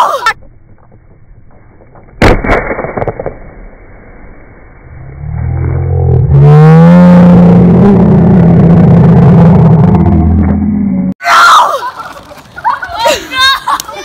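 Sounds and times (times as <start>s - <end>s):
car engine revving: 5.4s - 11.1s.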